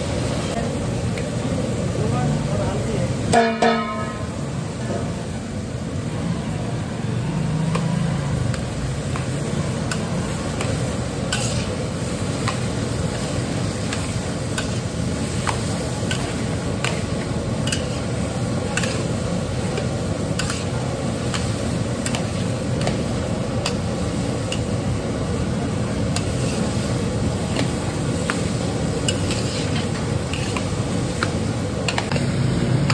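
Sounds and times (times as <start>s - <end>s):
potatoes sizzling: 0.0s - 32.9s
metal spatula scraping iron pan: 29.1s - 30.6s.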